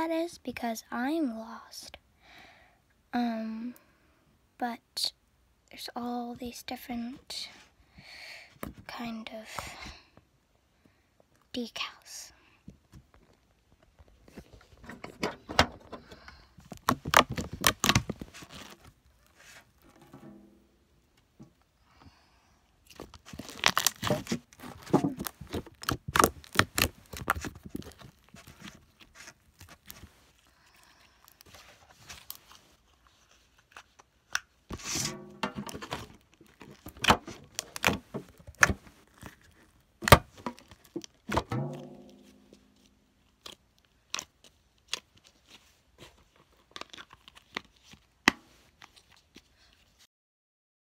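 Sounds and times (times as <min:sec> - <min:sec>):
soft clicks and crackles of slime: 0:42.8 - 0:48.1.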